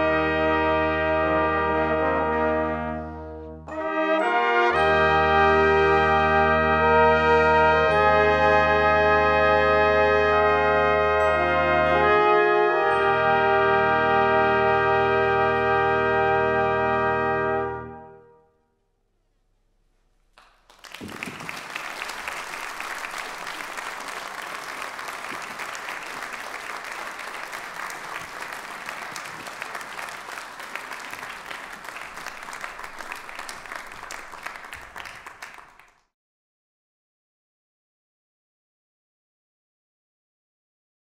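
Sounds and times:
brass chord: 0:00.0 - 0:19.1
audience applause: 0:20.4 - 0:36.1.

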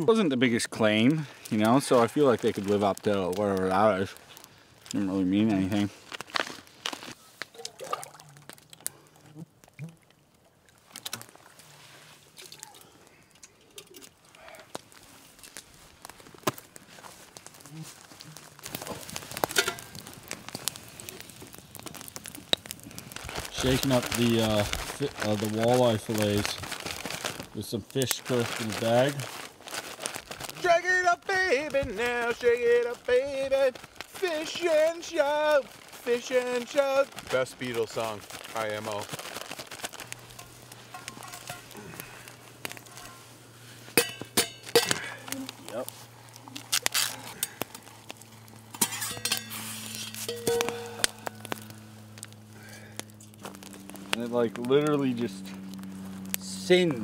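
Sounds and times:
campfire crackling and popping: 0:00.0 - 0:57.0
rustling: 0:01.3 - 0:09.1, 0:10.8 - 0:57.0
metal cookware clinking: 0:44.0 - 0:45.0, 0:48.8 - 0:51.1.

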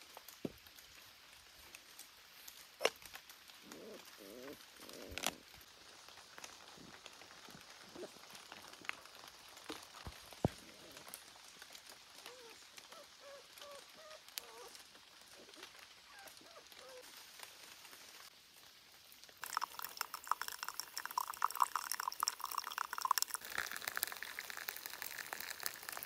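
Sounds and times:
soft hiss: 0:00.0 - 0:26.0
dog whining: 0:03.6 - 0:05.4, 0:12.2 - 0:17.0.

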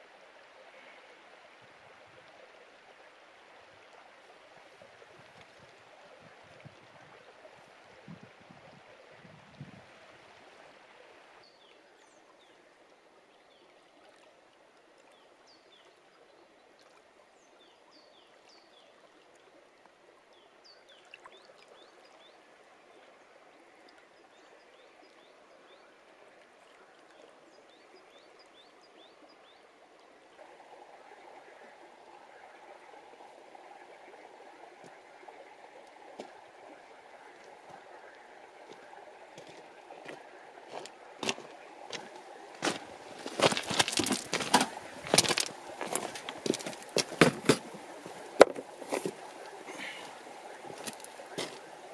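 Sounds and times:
stream flowing over stones: 0:00.0 - 0:51.9
birds chirping: 0:36.4 - 0:51.9.

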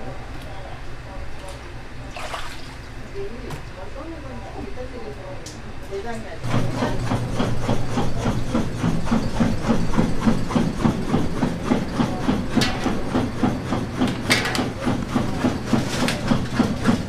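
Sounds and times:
low machine hum: 0:00.0 - 0:17.0
machinery knocking rhythmically: 0:06.4 - 0:17.0.

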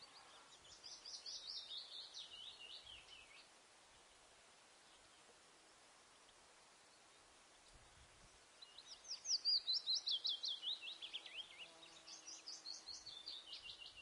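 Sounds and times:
bird singing high chirps: 0:00.0 - 0:03.5, 0:08.6 - 0:14.0.

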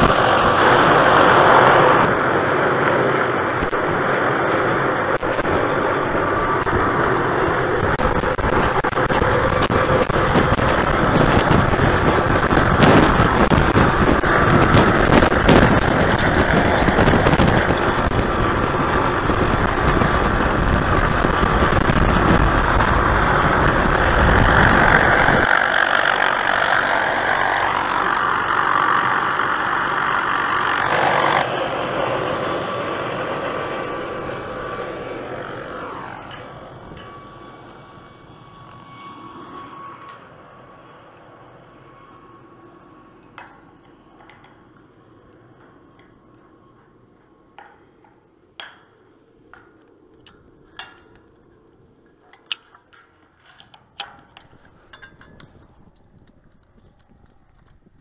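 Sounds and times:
helicopter engine and rotor: 0:00.0 - 0:58.0
steel parts clinking: 0:52.3 - 0:55.6.

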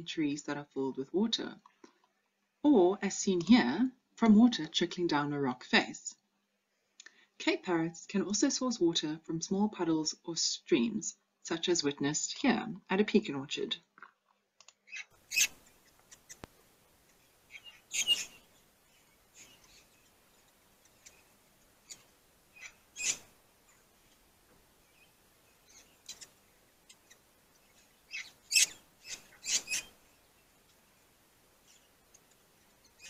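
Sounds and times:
parrot calls: 0:14.9 - 0:16.4, 0:17.4 - 0:18.5, 0:20.8 - 0:23.9, 0:25.6 - 0:30.0.

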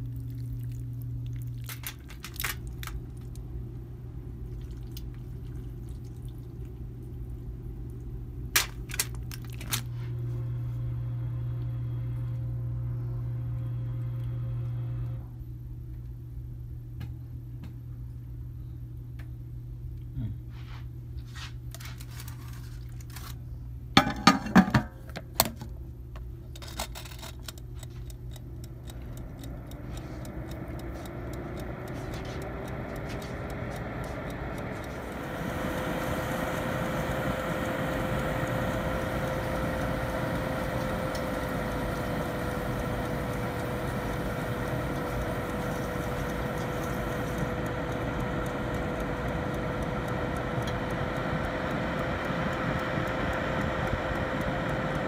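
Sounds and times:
oven fan motor whirring: 0:00.0 - 0:55.0
sharp clicks and clatter: 0:26.5 - 0:29.5.

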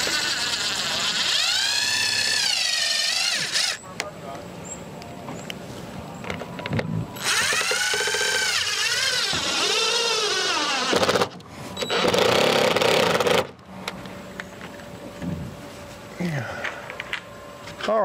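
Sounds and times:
cordless drill driving screws: 0:00.0 - 0:03.8, 0:07.2 - 0:13.5.

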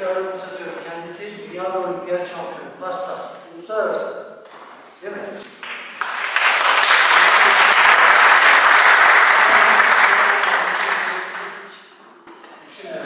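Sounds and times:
audience applauding: 0:05.5 - 0:11.8.

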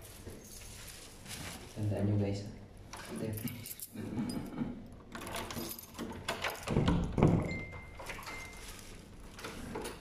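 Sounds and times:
keys rattling in lock: 0:03.0 - 0:10.0.

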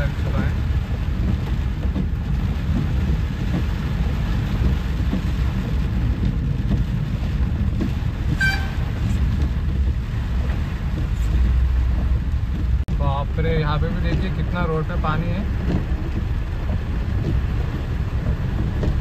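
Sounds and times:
car driving rumble: 0:00.0 - 0:19.0
heavy rain on car roof: 0:00.0 - 0:19.0
vehicle horn toot: 0:08.3 - 0:08.9.

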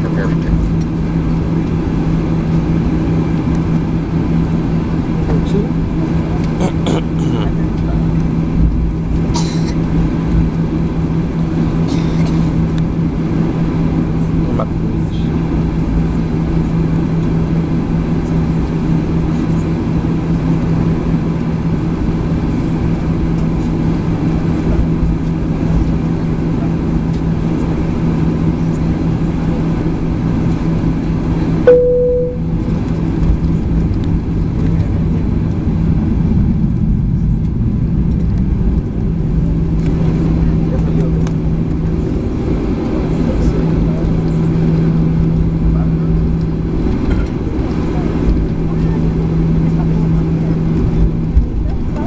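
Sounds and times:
jet engines rumbling in cabin: 0:00.0 - 0:52.0
single-tone cabin chime: 0:31.7 - 0:32.7.

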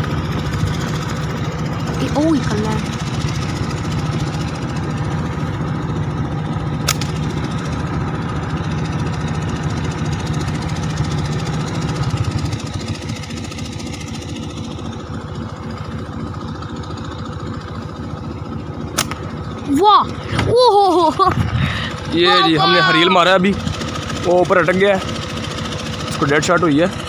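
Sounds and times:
engine running: 0:00.0 - 0:27.0
sharp click: 0:06.8 - 0:07.2, 0:19.0 - 0:19.2.

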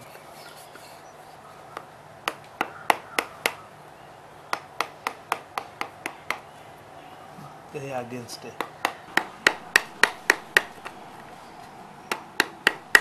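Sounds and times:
carving tool tapping into wood: 0:08.6 - 0:11.0, 0:12.1 - 0:13.0.

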